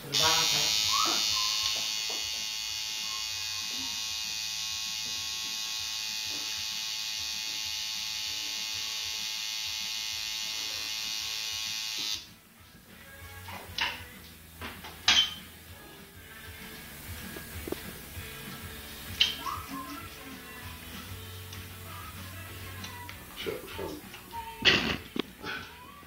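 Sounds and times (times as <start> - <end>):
tattoo machine buzzing: 0.1 - 12.3.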